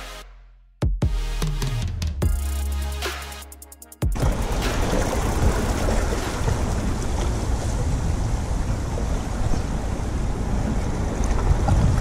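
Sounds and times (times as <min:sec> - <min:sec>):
waves washing against rocks: 0:04.2 - 0:12.0
wind rumble on microphone: 0:04.2 - 0:12.0.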